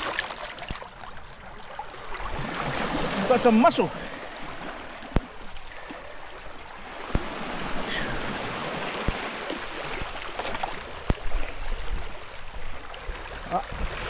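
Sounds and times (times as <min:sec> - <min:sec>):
waves washing over rocks: 0:00.0 - 0:01.1, 0:01.9 - 0:14.0.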